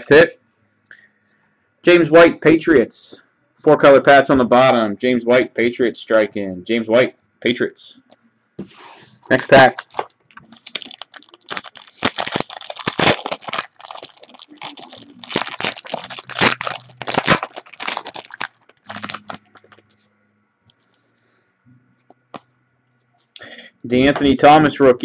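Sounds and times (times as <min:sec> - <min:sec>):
foil wrapper crinkling and tearing: 0:09.2 - 0:20.0.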